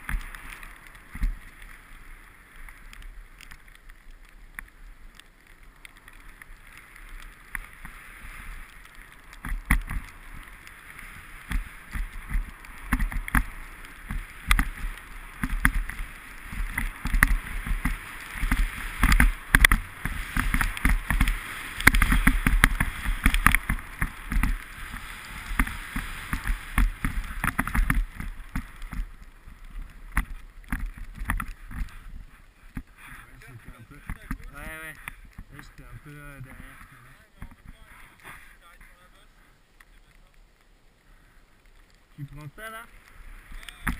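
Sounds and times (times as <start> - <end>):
skis scraping over snow: 0.0 - 40.3, 41.1 - 43.9.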